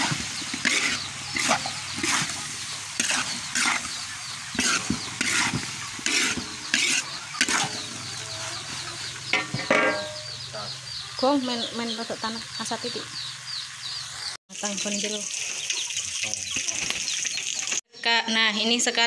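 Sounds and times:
metal spatula scraping wok: 0.0s - 10.5s
light sizzle: 0.0s - 17.8s.

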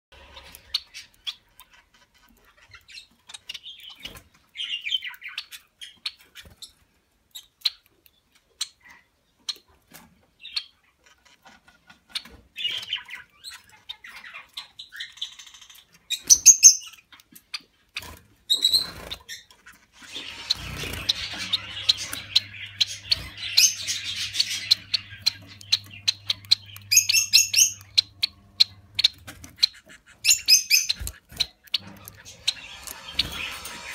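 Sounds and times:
finches chirping: 12.1s - 33.9s.

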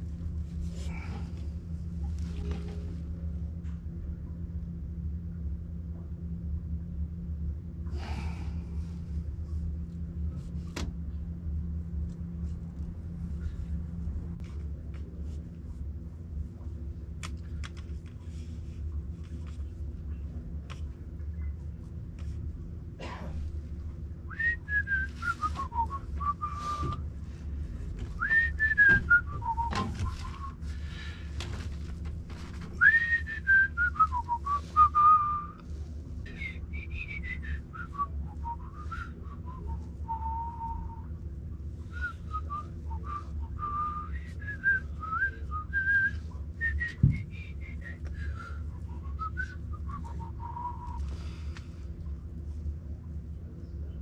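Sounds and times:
steady low hum: 0.0s - 54.0s
person whistling a tune: 24.3s - 27.0s, 28.2s - 30.6s, 32.8s - 35.5s, 36.3s - 40.9s, 41.9s - 48.5s, 49.1s - 51.0s.

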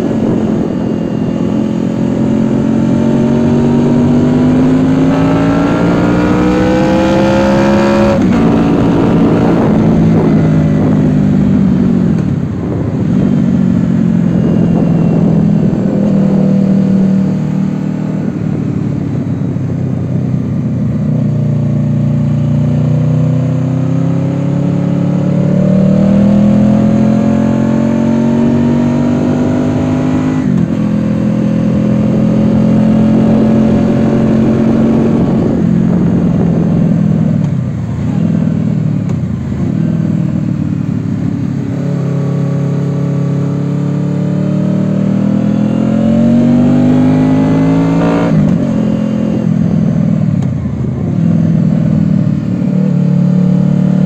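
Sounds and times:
wind rushing: 0.0s - 19.9s, 27.9s - 37.8s
motorcycle engine revving: 0.0s - 54.0s.

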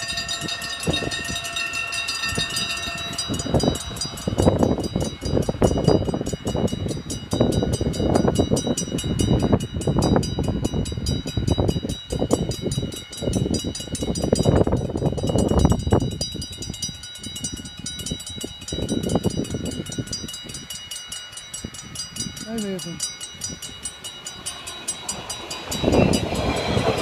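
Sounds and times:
level crossing warning bells: 0.0s - 27.0s
wind buffeting microphone: 0.0s - 27.0s.

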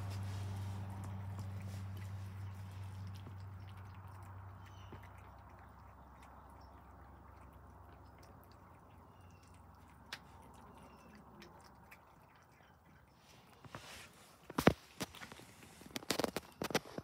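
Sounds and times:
cats chewing wet food: 0.0s - 17.0s.

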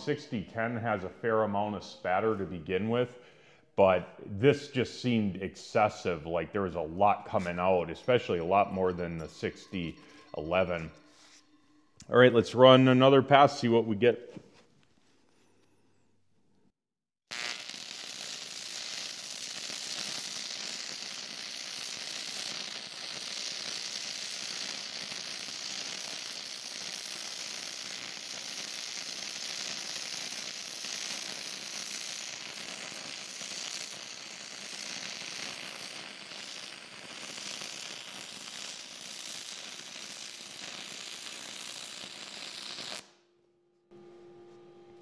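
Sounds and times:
welding arc crackling: 17.3s - 43.2s.

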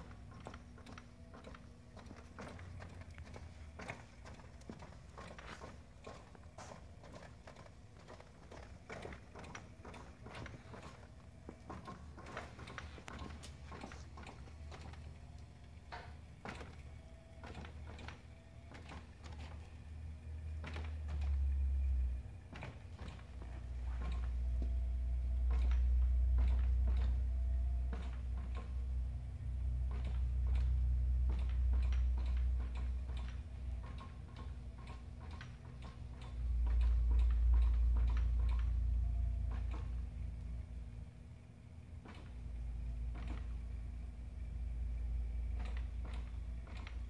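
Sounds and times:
rapid irregular ticking: 0.0s - 27.3s
electric wheelchair motors humming: 0.0s - 47.0s.

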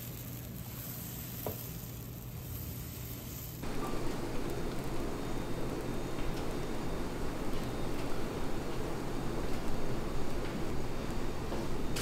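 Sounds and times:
batter sizzling on waffle iron: 0.0s - 12.0s
steady low hum: 1.9s - 12.0s.

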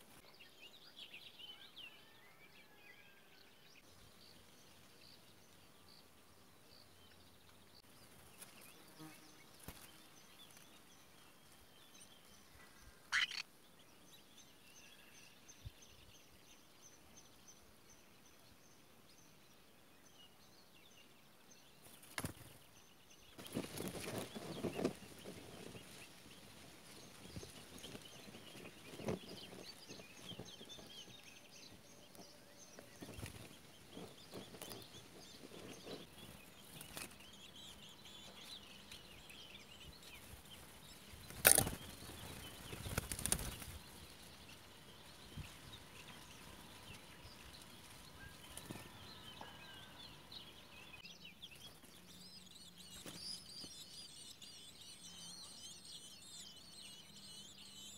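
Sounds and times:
wingbeats and rustling: 7.5s - 12.4s, 21.8s - 49.7s, 51.3s - 54.9s
nestlings begging calls: 13.1s - 13.4s.

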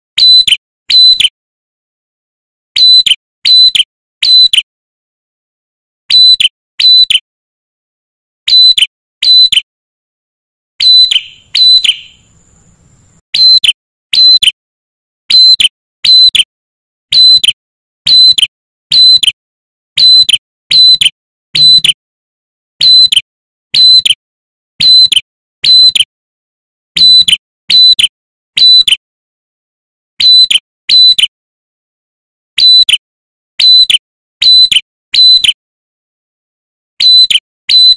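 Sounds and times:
bird calling sharp notes: 0.2s - 1.3s, 2.8s - 4.6s, 6.1s - 7.2s, 8.5s - 9.6s, 10.8s - 14.6s, 15.3s - 16.4s, 17.1s - 17.5s, 18.1s - 19.3s, 20.0s - 22.0s, 22.8s - 23.2s, 24.8s - 26.0s, 33.6s - 35.6s.

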